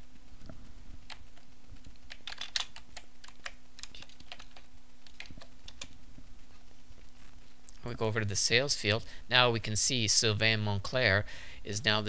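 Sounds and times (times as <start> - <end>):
faint steady hum: 0.0 - 12.0
computer keyboard typing: 1.1 - 6.0.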